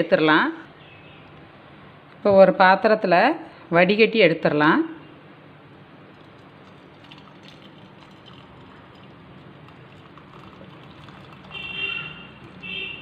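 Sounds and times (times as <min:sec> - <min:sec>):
syrup trickling into pan: 0:06.2 - 0:12.8.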